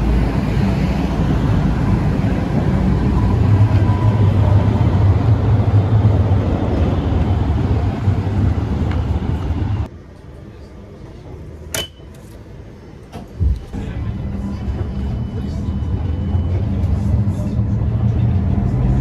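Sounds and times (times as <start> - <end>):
tram rumbling: 0.0 - 19.0.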